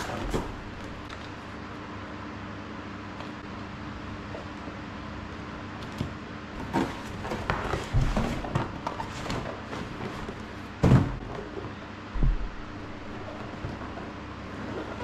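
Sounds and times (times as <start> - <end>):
cardboard scraping and rustling: 0.0 - 1.1, 6.6 - 11.8, 13.0 - 15.0
box thump: 10.8 - 11.4.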